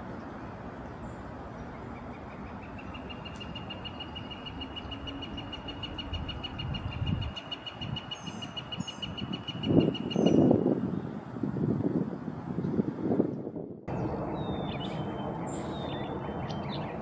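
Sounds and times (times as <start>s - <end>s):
low wind rumble on microphone: 4.9s - 17.0s.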